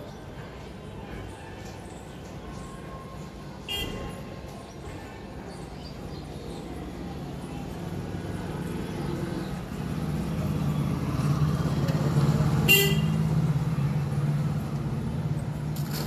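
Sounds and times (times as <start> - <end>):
motor vehicle passing: 7.8 - 16.0.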